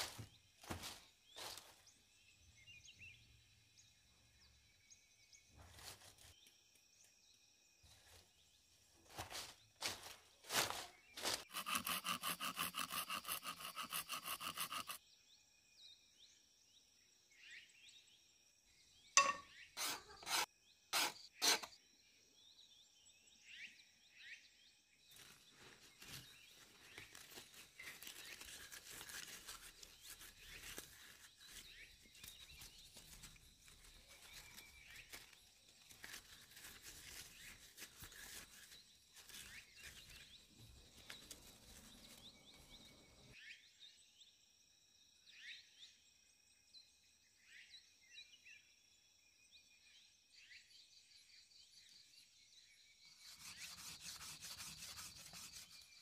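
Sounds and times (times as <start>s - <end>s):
hands rustling wood shavings: 25.6s - 40.0s.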